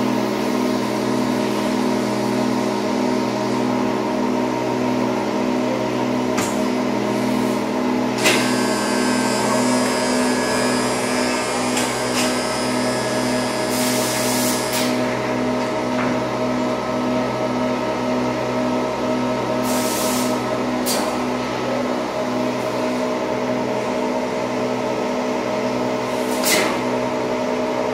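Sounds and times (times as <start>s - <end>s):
machine hum: 0.0s - 19.6s
short air hisses: 19.6s - 21.0s.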